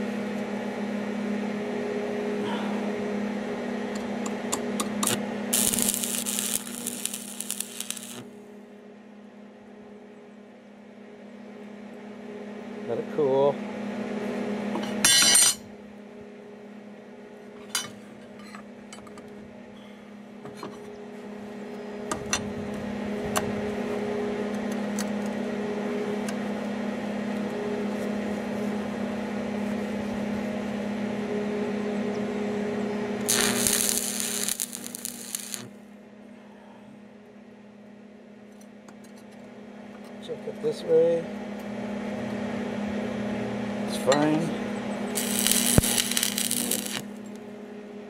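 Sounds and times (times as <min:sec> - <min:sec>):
welding machine hum: 0:03.9 - 0:08.5, 0:33.2 - 0:35.8, 0:43.9 - 0:47.7
welding arc crackling: 0:05.0 - 0:08.3, 0:33.2 - 0:35.7, 0:45.1 - 0:47.3.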